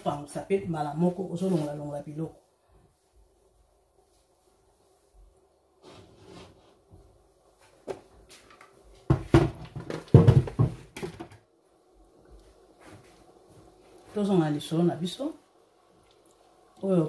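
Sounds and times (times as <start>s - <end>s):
faint steady hum: 0.0s - 17.0s
kitchen knocks and rattles: 9.0s - 11.5s.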